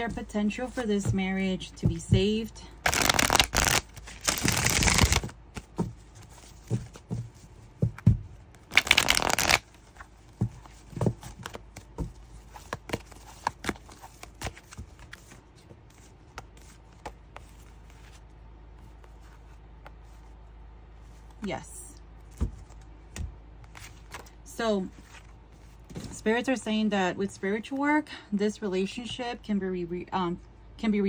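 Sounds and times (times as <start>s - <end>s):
cards riffling: 2.8s - 5.7s, 8.7s - 9.8s.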